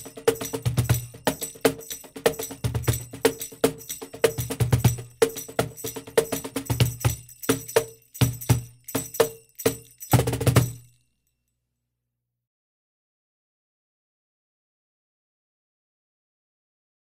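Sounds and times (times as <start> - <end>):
cajon played by hand: 0.0 - 10.8
foot tambourine jingling: 0.0 - 11.3.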